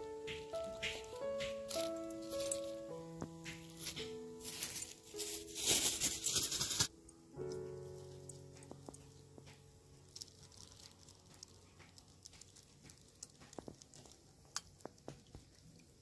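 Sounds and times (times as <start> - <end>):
plastic bag handled: 0.4 - 6.9.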